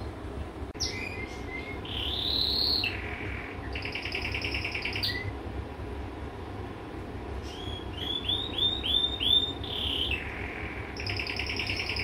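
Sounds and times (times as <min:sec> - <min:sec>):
canary singing: 0:00.8 - 0:05.4, 0:07.4 - 0:12.0.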